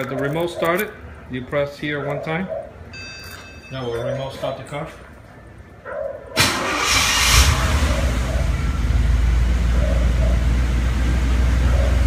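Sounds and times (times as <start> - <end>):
car engine starting and idling: 6.4 - 12.0.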